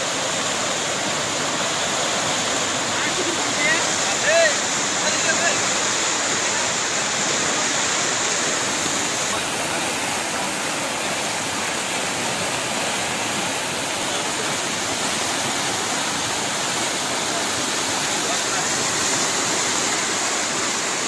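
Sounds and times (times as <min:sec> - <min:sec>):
floodwater rushing: 0:00.0 - 0:21.0.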